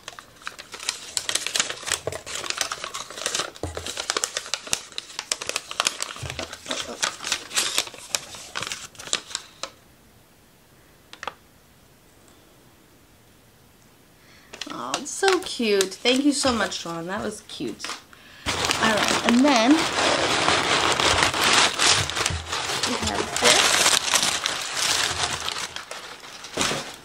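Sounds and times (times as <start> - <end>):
wrapping material crinkling: 0.0 - 9.8, 14.6 - 27.0.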